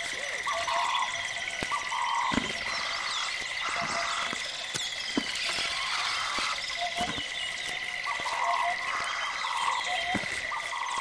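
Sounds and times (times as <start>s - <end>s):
chirps: 0.0s - 11.0s.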